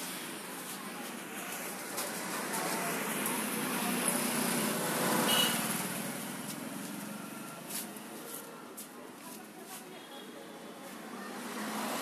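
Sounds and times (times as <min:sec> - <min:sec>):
vehicle passing by: 0:11.2 - 0:12.0.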